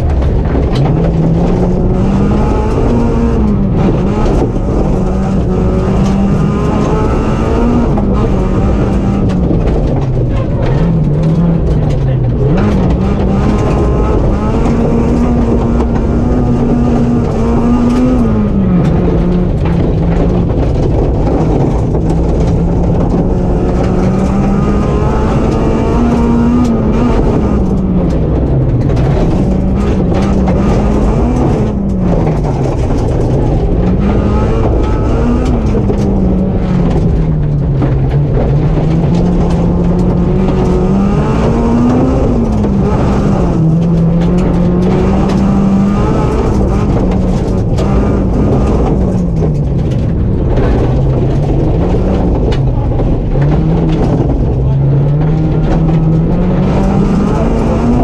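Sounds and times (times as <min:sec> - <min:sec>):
gravel rattling against car: 0:00.0 - 0:58.0
rally car engine: 0:00.0 - 0:58.0.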